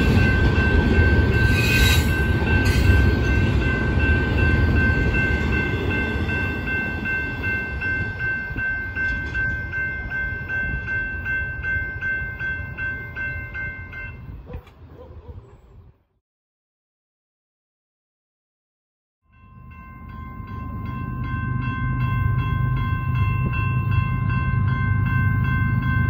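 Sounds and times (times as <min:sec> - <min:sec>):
crossing warning bell ringing: 0:00.0 - 0:14.4, 0:19.3 - 0:26.0
train wheels rumbling on rail: 0:00.0 - 0:15.1.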